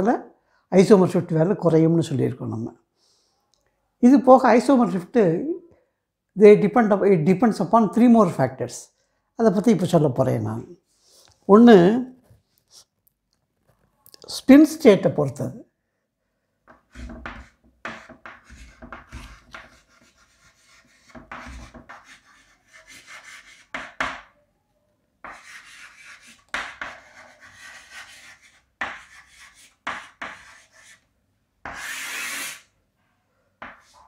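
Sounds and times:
pen scratching on paper: 16.8 - 24.0, 25.3 - 31.0, 31.6 - 32.7.

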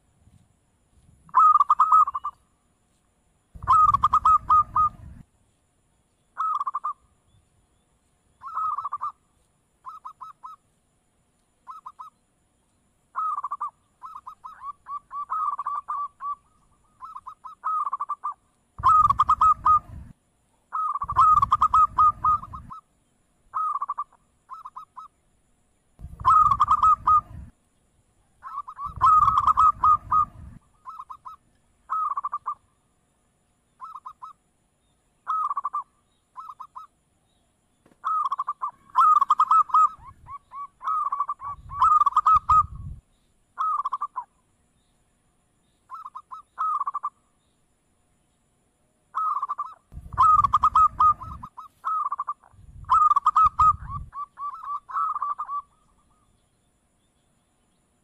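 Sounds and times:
dove cooing: 1.3 - 2.4, 3.6 - 5.2, 6.4 - 7.0, 8.4 - 9.2, 11.7 - 12.1, 13.2 - 20.1, 20.7 - 22.8, 23.5 - 25.1, 26.0 - 27.5, 28.4 - 32.6, 33.8 - 34.3, 35.2 - 35.8, 38.0 - 42.9, 43.6 - 44.3, 45.9 - 47.1, 49.1 - 56.2.

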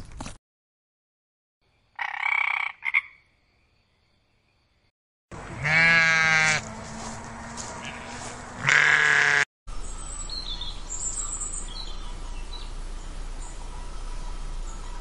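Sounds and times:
frog croaking: 2.0 - 3.2
sheep bleating: 5.4 - 6.7, 7.8 - 9.5.

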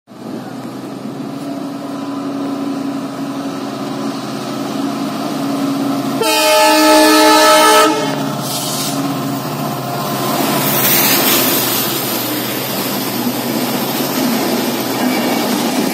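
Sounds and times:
locomotive engine drone: 0.1 - 15.9
multi-tone air horn blast: 6.2 - 9.0.

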